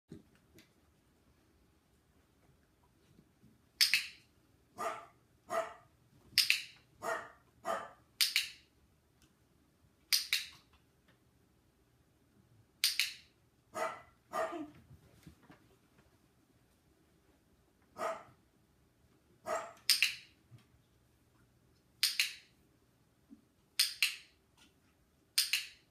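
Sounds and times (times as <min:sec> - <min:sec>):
small dog barking and yipping: 0:04.8 - 0:05.9, 0:07.0 - 0:08.0, 0:13.8 - 0:14.7, 0:18.0 - 0:18.3, 0:19.4 - 0:19.9.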